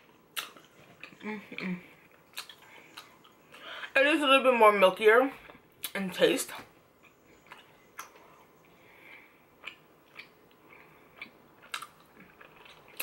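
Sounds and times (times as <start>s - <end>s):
closed-mouth chewing: 0.3s - 3.6s, 7.0s - 13.0s
wet lip and tongue clicks: 2.3s - 3.1s.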